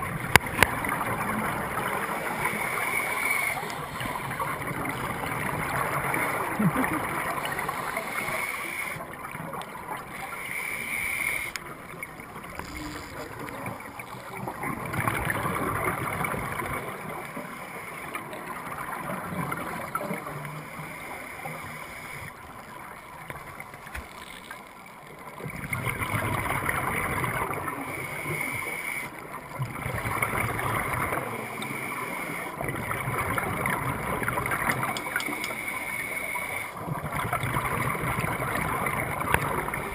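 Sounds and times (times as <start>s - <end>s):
scuba regulator breathing: 6.2s - 9.0s, 10.1s - 11.6s
bubbles gurgling underwater: 11.6s - 17.3s, 25.4s - 28.4s, 29.1s - 31.4s, 32.6s - 35.6s, 36.8s - 39.9s.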